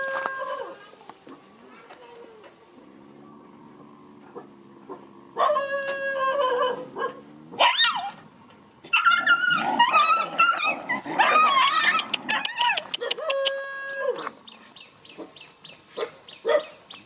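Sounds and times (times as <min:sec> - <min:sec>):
dog growling: 0:02.8 - 0:08.3
dogs yelping: 0:03.2 - 0:14.4, 0:16.0 - 0:16.8
dog whining: 0:04.3 - 0:08.2.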